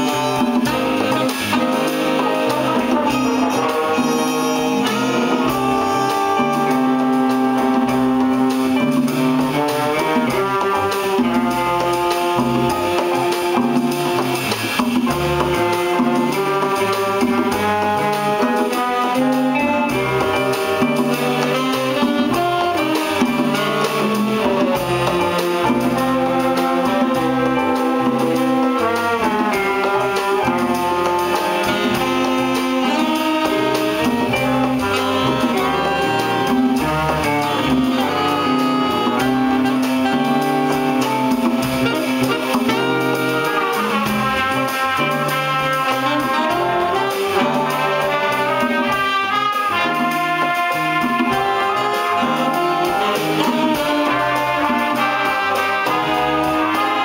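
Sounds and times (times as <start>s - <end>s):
bass: 0.0s - 57.0s
drum kit: 0.0s - 57.0s
saxophone section: 0.0s - 57.0s
trumpets and trombones: 0.0s - 57.0s.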